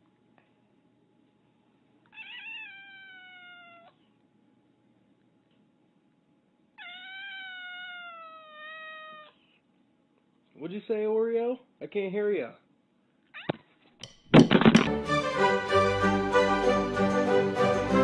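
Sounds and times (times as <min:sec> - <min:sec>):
cat meowing long: 0:02.1 - 0:04.0, 0:06.8 - 0:09.4.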